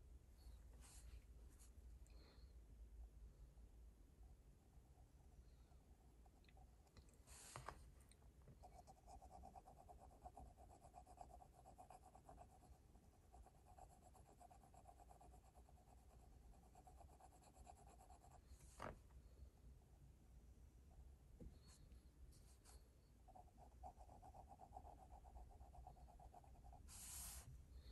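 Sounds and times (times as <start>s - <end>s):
pencil scratching on paper: 8.7s - 18.4s, 22.5s - 27.5s.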